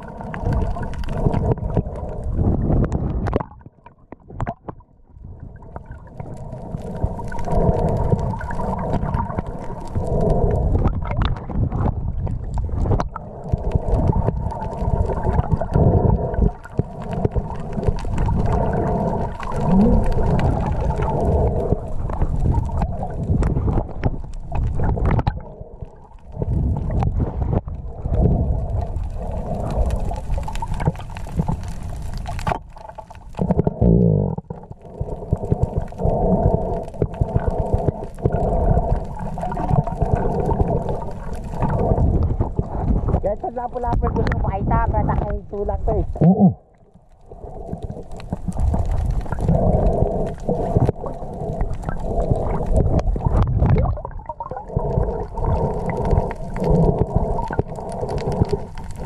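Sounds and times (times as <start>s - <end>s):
muffled underwater water rumble: 0.0s - 59.0s.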